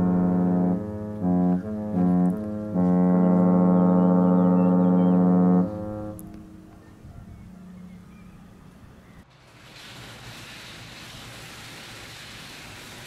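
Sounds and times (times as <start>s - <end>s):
ship's horn blasts: 0.0s - 8.6s.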